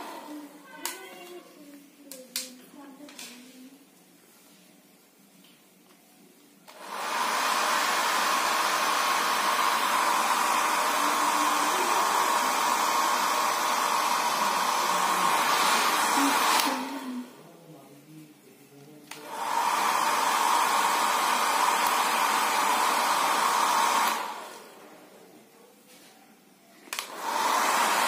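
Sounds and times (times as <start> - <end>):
hair dryer blowing: 0.0 - 0.5, 6.7 - 17.4, 19.1 - 24.8, 26.9 - 28.0.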